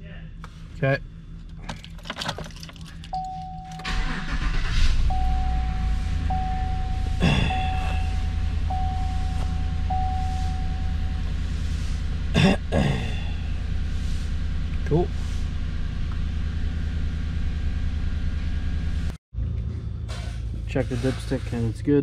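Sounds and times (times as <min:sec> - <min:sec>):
car engine starting and idling: 0:00.2 - 0:22.0
chime tone: 0:03.2 - 0:04.0, 0:05.1 - 0:11.2.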